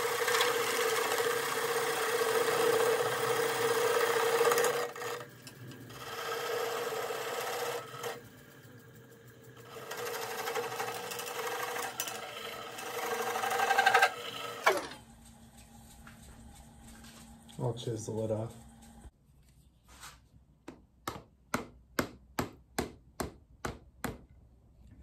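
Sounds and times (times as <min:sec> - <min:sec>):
turning tool cutting wood: 0:00.0 - 0:15.0
wood lathe humming: 0:00.0 - 0:15.0.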